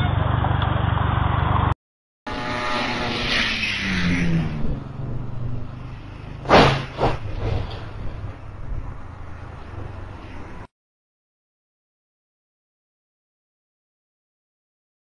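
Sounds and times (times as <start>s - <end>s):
engine passing: 0.0s - 10.7s
street traffic: 0.0s - 10.7s
loud crash: 2.3s - 8.4s
smaller bang: 6.4s - 8.4s.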